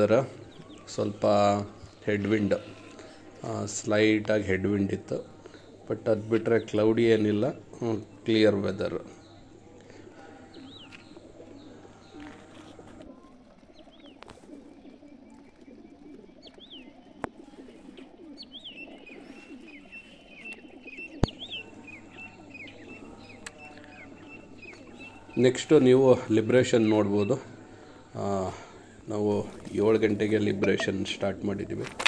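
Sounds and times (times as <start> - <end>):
pigeons cooing: 0.0 - 32.0
high bird chirps: 18.4 - 31.4.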